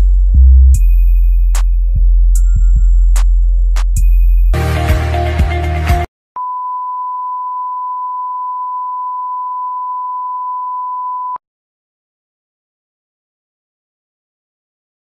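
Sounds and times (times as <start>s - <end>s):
electronic music: 0.0s - 6.1s
test tone beep: 6.4s - 11.4s.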